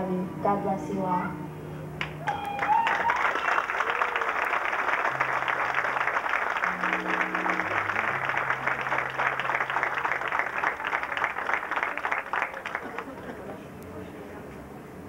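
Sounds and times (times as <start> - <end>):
low held musical notes: 0.0 - 2.6, 4.3 - 15.0
crowd applauding: 2.0 - 13.8.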